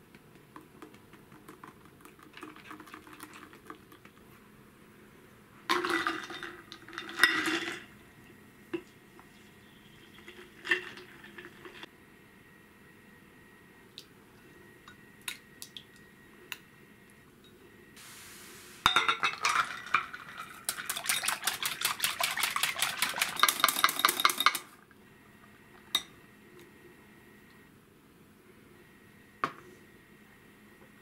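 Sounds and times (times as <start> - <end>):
whisk clinking against glass bowl: 18.9 - 24.7.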